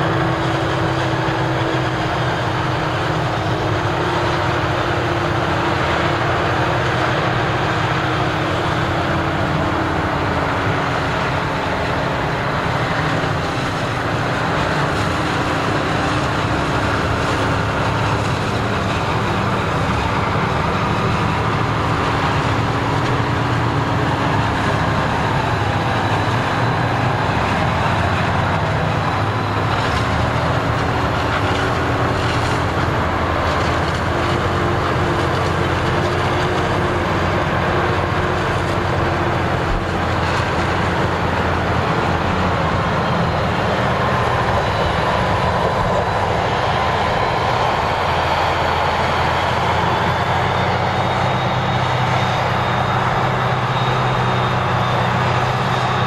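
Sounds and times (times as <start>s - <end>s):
tractor engine hum: 0.0s - 56.0s
forage harvester chopping: 27.9s - 43.3s.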